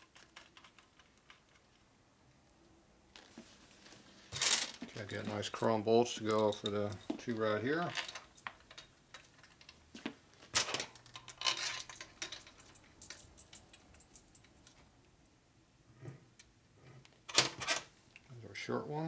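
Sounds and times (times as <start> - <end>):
steel bolts and washers clinking: 4.3 - 9.8, 10.6 - 14.9.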